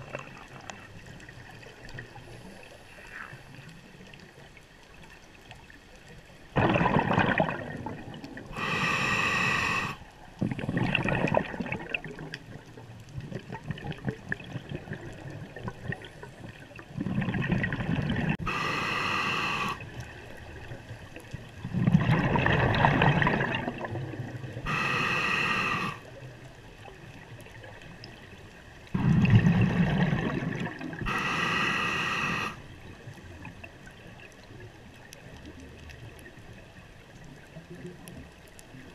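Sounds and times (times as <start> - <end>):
exhaled bubbles rumbling: 6.4 - 36.5
hissing inhale through regulator: 8.5 - 10.1, 18.3 - 20.0, 24.6 - 26.1, 31.0 - 32.7.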